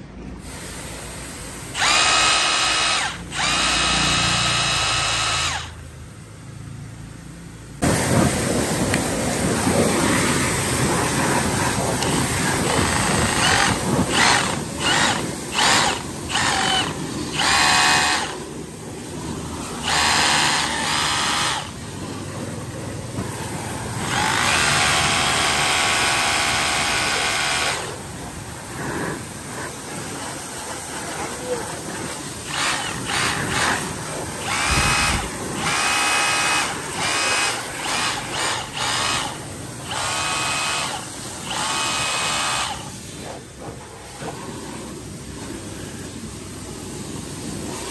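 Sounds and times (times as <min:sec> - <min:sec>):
power tool motor whirring: 0:00.4 - 0:05.9, 0:12.0 - 0:22.3, 0:23.1 - 0:28.1, 0:32.1 - 0:43.4
steady rushing background noise: 0:07.6 - 0:26.0.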